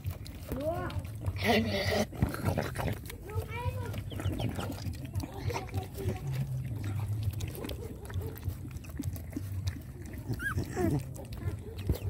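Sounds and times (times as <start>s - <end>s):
puppy smacking and slurping: 0.0s - 12.0s
puppy squealing: 10.2s - 12.0s.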